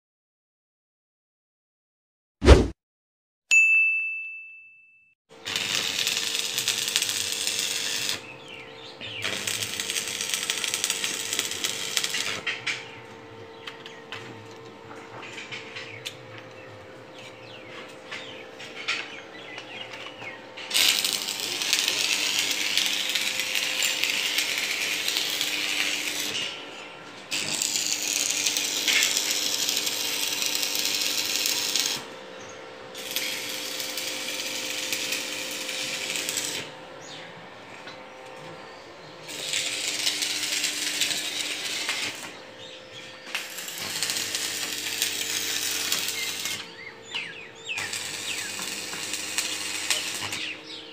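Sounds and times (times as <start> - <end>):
welding arc crackling: 5.4 - 12.8, 19.1 - 26.6, 27.3 - 32.2, 33.0 - 36.7, 39.3 - 50.9.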